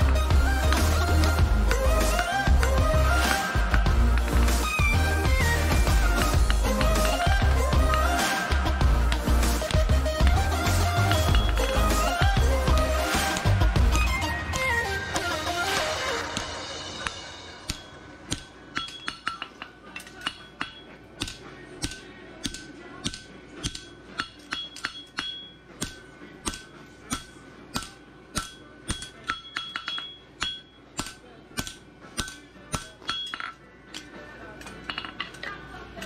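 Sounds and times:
background music: 0.0 - 36.0
hammer striking hot metal on anvil: 16.2 - 34.0.

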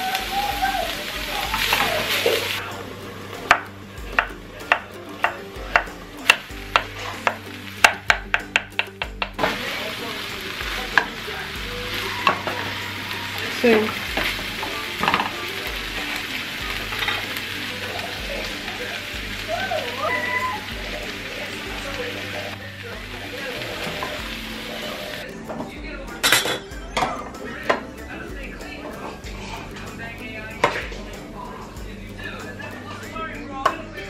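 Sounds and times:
food sizzling in frying pan: 0.0 - 25.3
spatula stirring in pan: 3.3 - 19.1.

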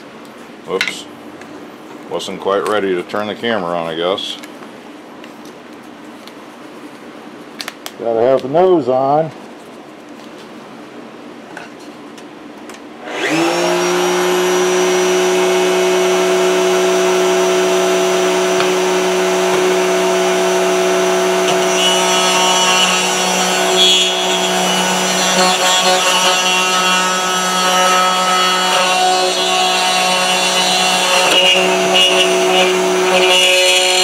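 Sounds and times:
router cutting plywood: 13.0 - 34.0
router whining: 13.0 - 34.0.

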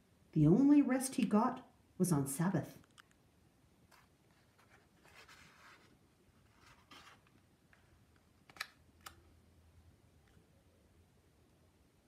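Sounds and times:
book page turning: 3.9 - 9.2.

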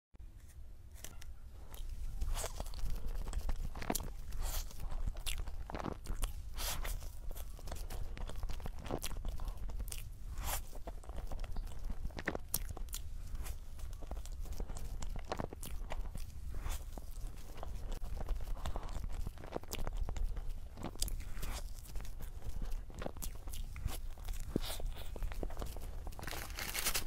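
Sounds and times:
eating soft crepe: 0.4 - 27.0.

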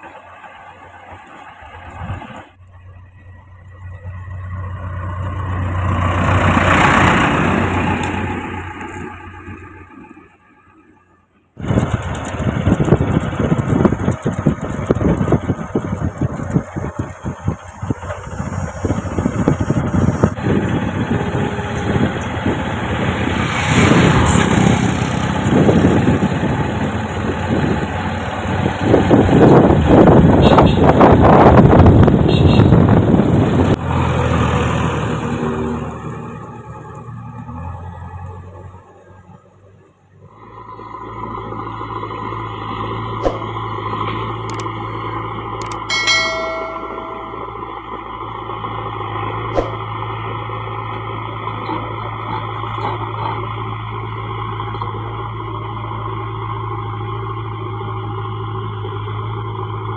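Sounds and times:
diesel engine of backhoe driving: 0.0 - 59.9
bell-like ding: 45.8 - 47.8.

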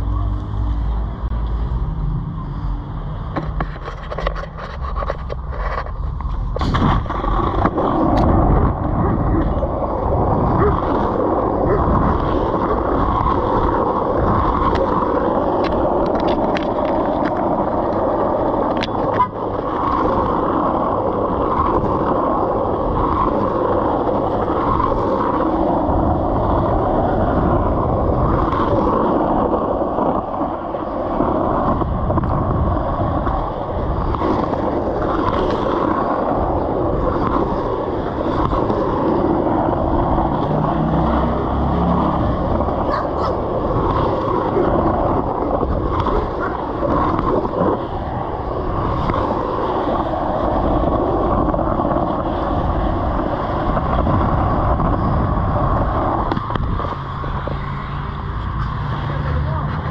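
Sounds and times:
skateboard wheels rumbling on asphalt: 0.0 - 59.9
skateboard clicks and knock: 3.2 - 59.0.

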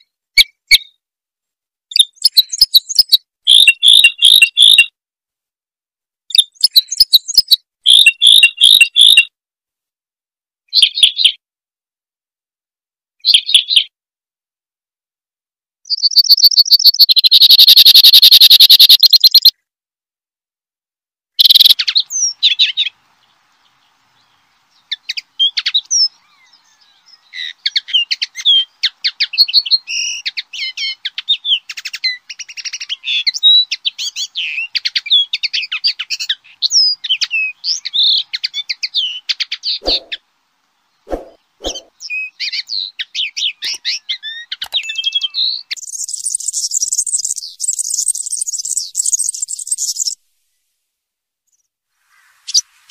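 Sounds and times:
songbird trill: 1.9 - 4.9, 6.3 - 9.3, 15.9 - 19.5, 21.4 - 50.2
songbird twittering song: 1.9 - 4.9, 6.3 - 9.3, 13.2 - 13.9, 15.8 - 19.6, 21.4 - 50.2.

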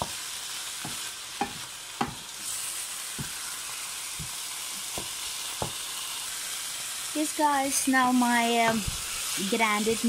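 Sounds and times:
meat sizzling in a frying pan: 0.0 - 10.0
wooden spoon knocking on pan: 0.8 - 2.3, 3.1 - 3.4, 4.2 - 5.8.

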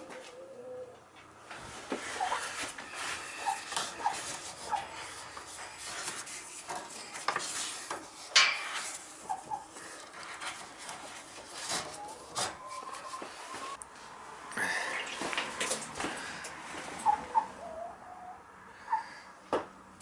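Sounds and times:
chickens clucking: 0.0 - 1.3, 2.0 - 5.6, 9.1 - 13.8, 14.9 - 19.2
rope rubbing and clattering: 1.6 - 13.1.

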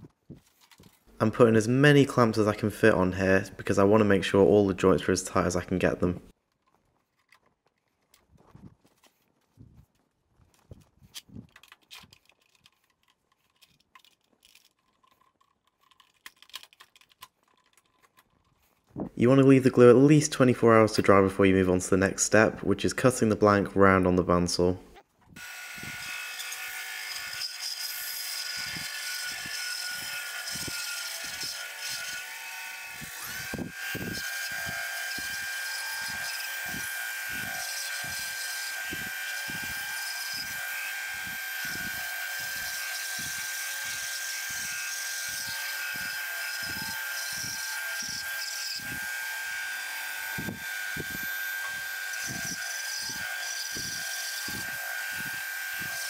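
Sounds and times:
bandsaw cutting wood: 25.4 - 56.0.

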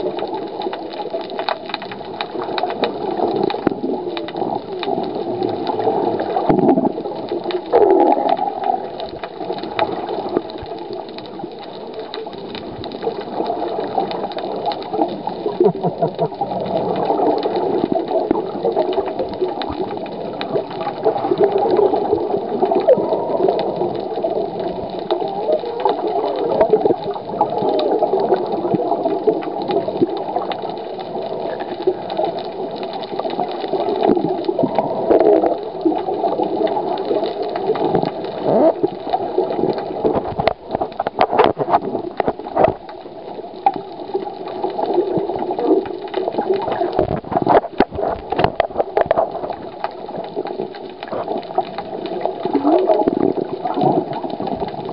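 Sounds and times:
water churning underwater: 0.0 - 54.9.

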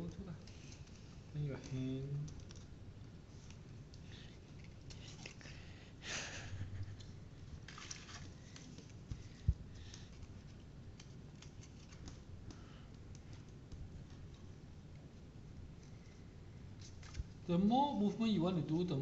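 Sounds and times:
card paper rustling and crinkling: 7.6 - 12.3.

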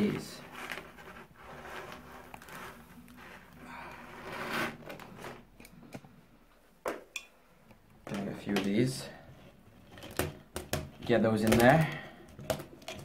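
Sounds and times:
candy strands rustling: 0.0 - 5.6.

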